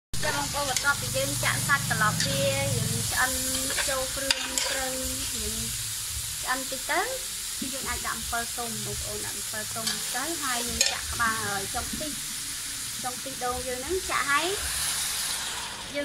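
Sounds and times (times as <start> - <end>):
meat sizzling: 0.2 - 16.0
metal ladle scraping pot: 3.5 - 4.9.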